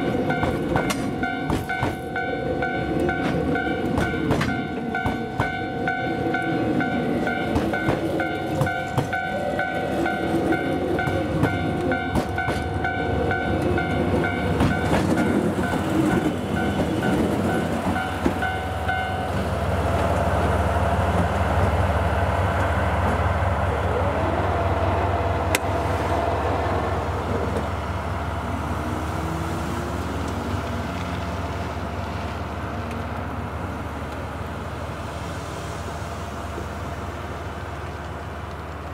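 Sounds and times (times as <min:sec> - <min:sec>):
train wagons clattering over rail joints: 0:00.0 - 0:02.3, 0:03.0 - 0:21.7
diesel locomotive engine rumble: 0:00.0 - 0:38.9.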